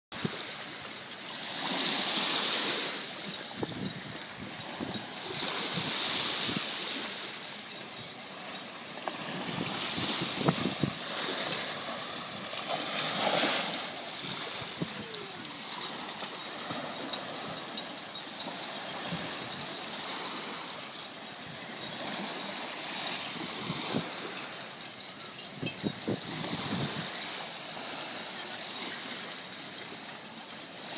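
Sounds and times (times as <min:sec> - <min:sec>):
choppy sea washing ashore: 0:00.1 - 0:30.9
wind buffeting microphone: 0:03.2 - 0:06.7, 0:09.2 - 0:17.8, 0:25.5 - 0:27.9.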